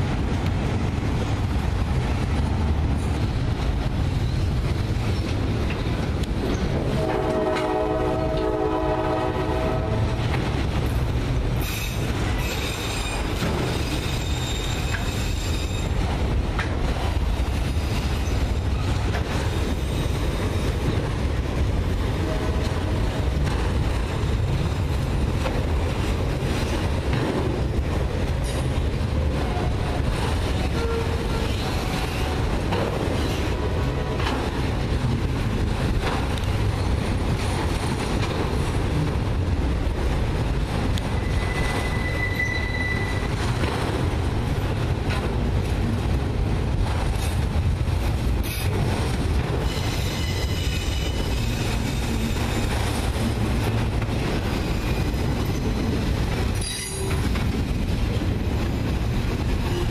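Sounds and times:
steel wheels rumbling on rails: 0.0 - 59.9
high wheel squeal: 11.6 - 16.0, 41.2 - 43.4, 49.6 - 52.7, 56.6 - 57.3.

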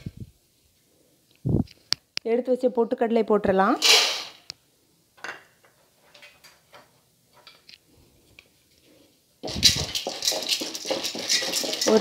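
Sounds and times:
chickpeas crackling in ghee: 9.4 - 12.0.

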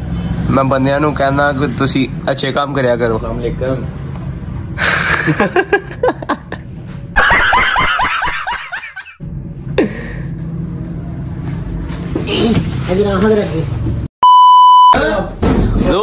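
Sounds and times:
laughter: 4.8 - 9.2.

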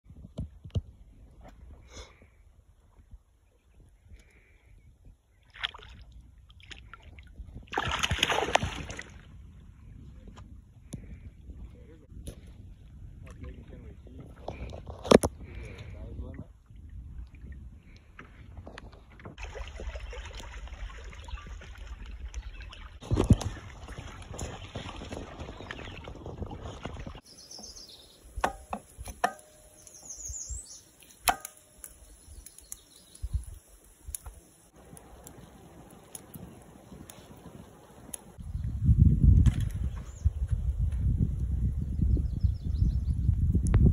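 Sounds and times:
rushing wind and water: 5.5 - 10.2
fish splashing water: 5.6 - 9.2, 19.4 - 27.2
high bird chirps: 27.3 - 28.4, 29.4 - 31.3.

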